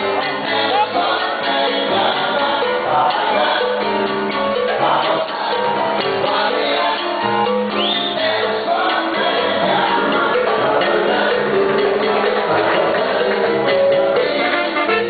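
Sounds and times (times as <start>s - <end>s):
conga drums: 0.0s - 15.0s
latin dance band playing: 0.0s - 15.0s.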